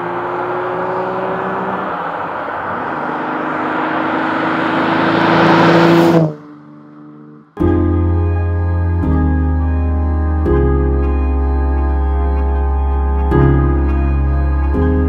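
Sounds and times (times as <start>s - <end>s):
car engine accelerating: 0.0s - 15.0s.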